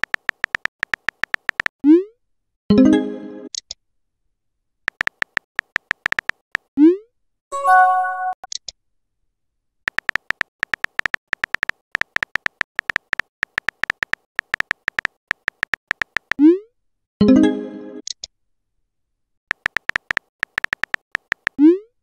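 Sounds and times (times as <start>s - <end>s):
phone keyboard typing clicks: 0.0s - 1.7s, 4.9s - 6.7s, 9.9s - 16.4s, 19.5s - 21.6s.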